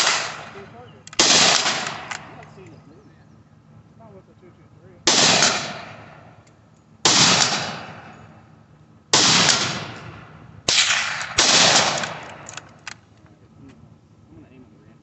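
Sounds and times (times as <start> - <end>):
gunshots: 0.0 - 2.5, 5.0 - 6.4, 7.0 - 8.2, 9.1 - 12.7.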